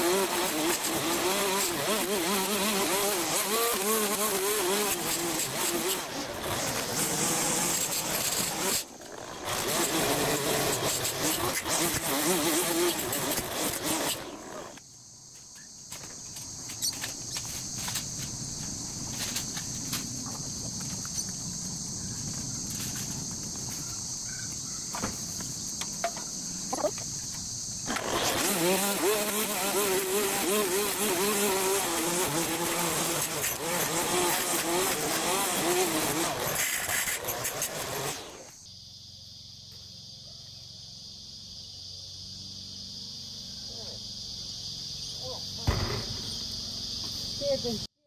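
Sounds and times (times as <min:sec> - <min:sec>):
line trimmer at full revs: 0:00.0 - 0:14.8, 0:27.8 - 0:38.6.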